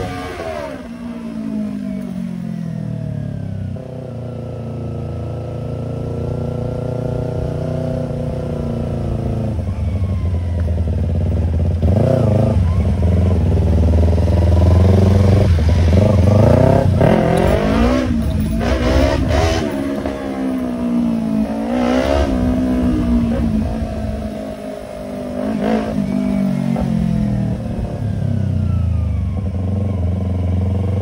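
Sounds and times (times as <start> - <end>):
motorcycle engine revving: 0.0 - 31.0.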